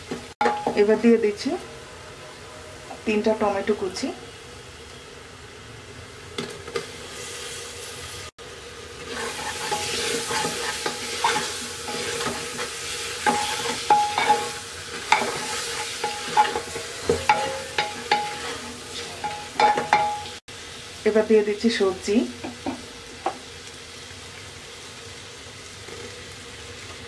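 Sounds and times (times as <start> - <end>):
tomatoes sizzling in oil: 0.0 - 1.7, 2.8 - 27.0
spatula scraping and clinking on pot: 9.1 - 20.4.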